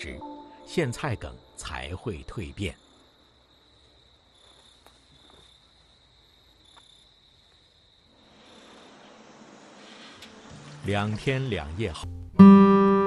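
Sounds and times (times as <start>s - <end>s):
crickets chirping: 0.0s - 11.8s
grains pouring hiss: 8.2s - 10.5s.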